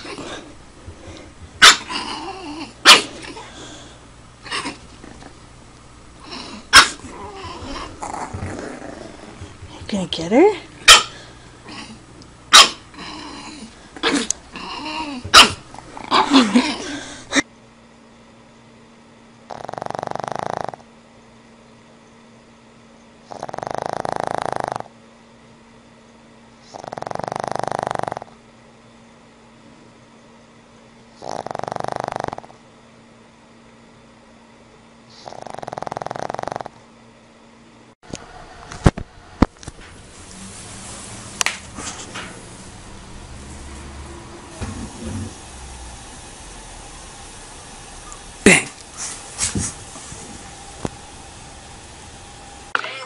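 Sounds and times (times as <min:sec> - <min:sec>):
puppy growling low: 0:00.0 - 0:05.4, 0:06.2 - 0:09.8, 0:10.9 - 0:17.4, 0:19.5 - 0:20.9, 0:23.2 - 0:25.0, 0:26.6 - 0:28.4, 0:31.2 - 0:32.6, 0:35.1 - 0:36.8
dog snoring: 0:01.1 - 0:05.4, 0:06.2 - 0:09.6, 0:12.9 - 0:17.2, 0:19.5 - 0:20.9, 0:23.2 - 0:25.0, 0:26.6 - 0:28.4, 0:31.2 - 0:32.6, 0:35.1 - 0:36.8
puppy barking sharply: 0:01.6 - 0:01.9, 0:02.8 - 0:03.2, 0:06.7 - 0:07.0, 0:10.8 - 0:11.2, 0:12.5 - 0:12.8, 0:15.3 - 0:15.6.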